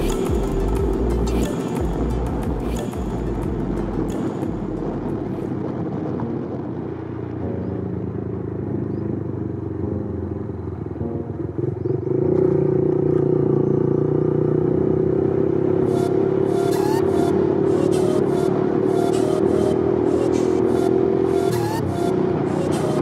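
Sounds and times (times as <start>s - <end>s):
vehicle engine running: 0.0s - 5.5s
wind noise: 0.0s - 9.0s
road noise: 0.0s - 23.0s.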